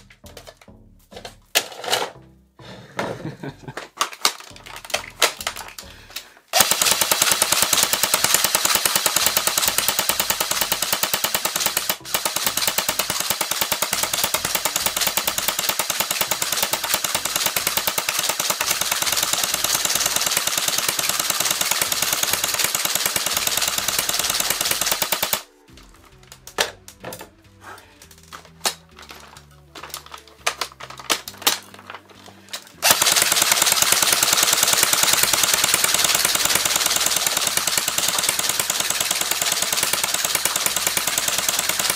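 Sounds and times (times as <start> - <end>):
scattered clicks: 3.8 - 27.0, 28.0 - 41.9
airsoft gun firing full auto: 6.5 - 25.5, 32.8 - 41.9.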